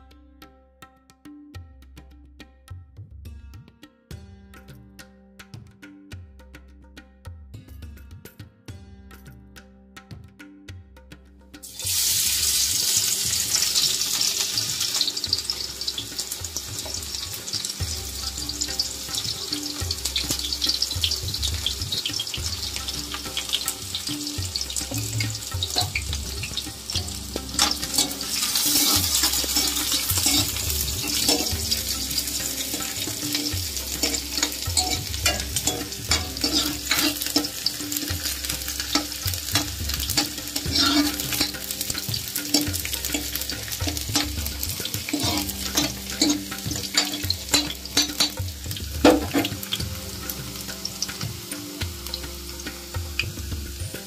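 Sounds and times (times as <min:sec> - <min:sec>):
ladle scraping metal pan: 0:11.6 - 0:51.5
onions sizzling in hot oil: 0:11.6 - 0:54.0.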